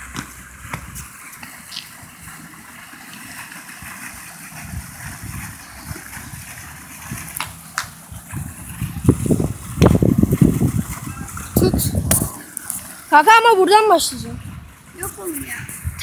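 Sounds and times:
loud low thuds: 0.0s - 1.1s
fountain water splashing: 0.0s - 16.0s.

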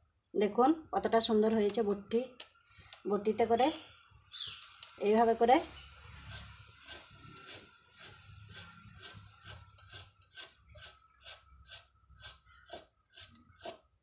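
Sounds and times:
blade slicing carrot: 6.3s - 13.9s.

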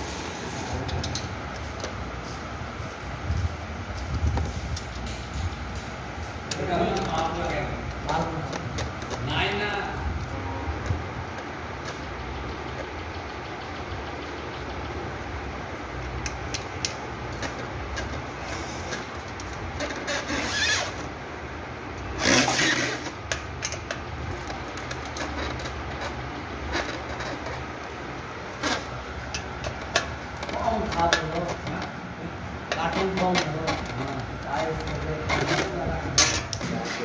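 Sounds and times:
steady low rumble: 0.0s - 19.8s.

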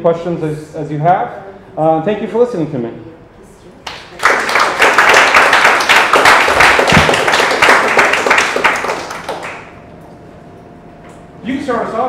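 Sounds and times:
audience applauding: 3.9s - 9.8s.

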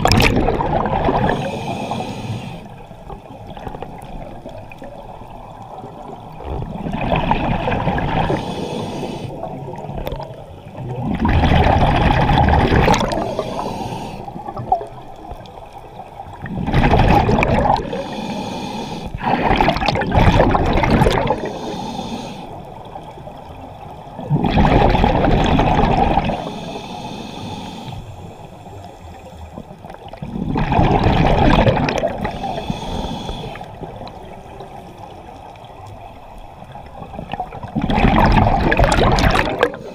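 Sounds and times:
water washing: 0.0s - 1.9s, 9.5s - 13.8s, 19.2s - 21.8s, 29.8s - 36.0s, 36.6s - 39.9s
exhaled bubbles gurgling: 0.0s - 18.4s, 19.0s - 26.8s, 28.2s - 39.9s.

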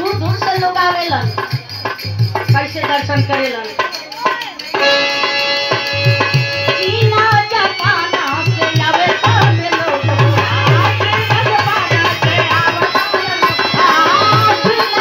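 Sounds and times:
dholak drum beat: 0.0s - 15.0s
harmonium held notes: 0.1s - 15.0s
woman singing: 6.6s - 15.0s.

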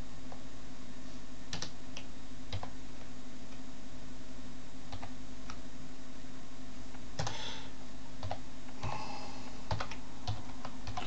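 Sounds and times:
faint steady hum: 0.0s - 11.0s
keyboard keystrokes: 1.5s - 2.7s.

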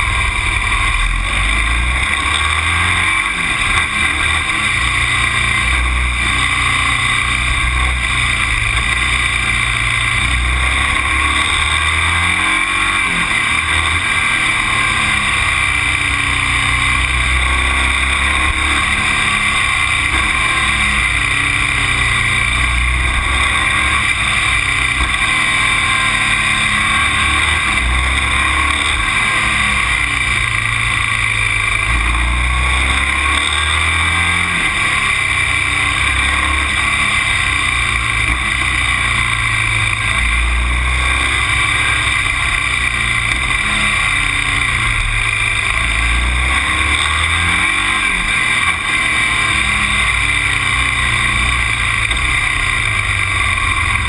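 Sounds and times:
low rumble: 0.0s - 12.2s
vehicle engine and road noise: 0.0s - 54.0s.

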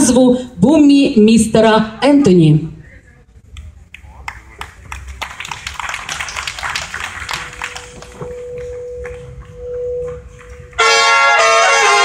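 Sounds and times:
scattered applause: 3.6s - 9.6s
big-band brass playing jazz: 10.7s - 12.0s.

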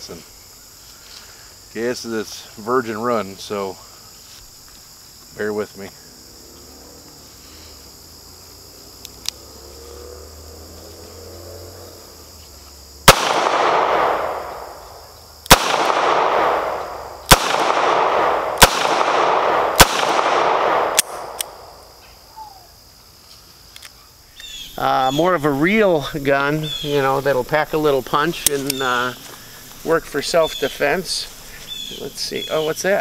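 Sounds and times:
revolver gunshots with echo: 13.1s - 14.8s, 15.5s - 21.7s.

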